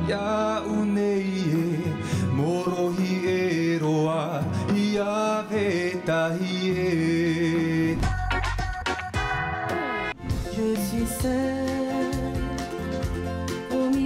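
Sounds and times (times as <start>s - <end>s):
man singing wordless melody: 0.0s - 8.4s, 10.3s - 12.6s.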